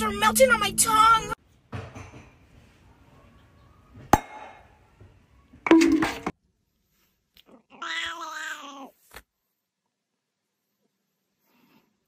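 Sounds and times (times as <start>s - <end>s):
cork popping: 5.7s - 6.3s
cat meowing: 7.6s - 9.0s.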